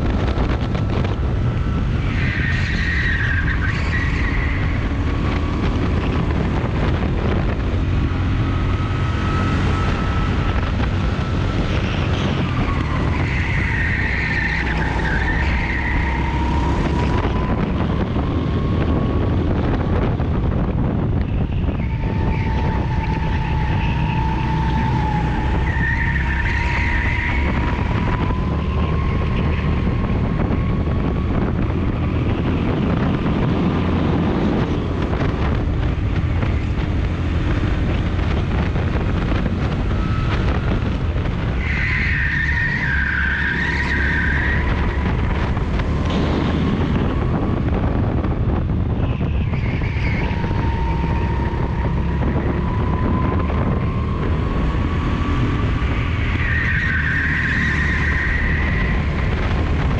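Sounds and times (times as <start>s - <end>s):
go-kart engine running hard: 0.0s - 59.9s
wind buffeting microphone: 0.0s - 59.9s
tyres squealing: 21.4s - 29.8s, 56.0s - 59.3s.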